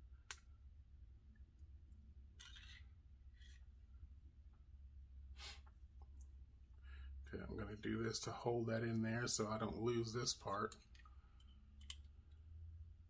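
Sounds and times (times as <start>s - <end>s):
faint metal scraping: 2.3s - 3.7s.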